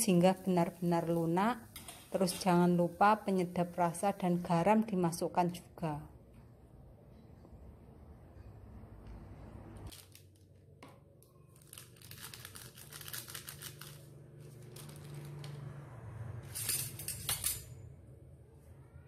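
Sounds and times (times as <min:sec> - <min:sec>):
plastic sachet crinkling: 0:09.9 - 0:10.6, 0:11.2 - 0:15.6.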